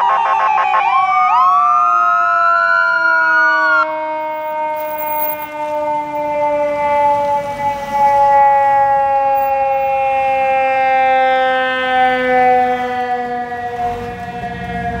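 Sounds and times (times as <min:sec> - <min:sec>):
fire engine rumble: 0:05.5 - 0:15.0.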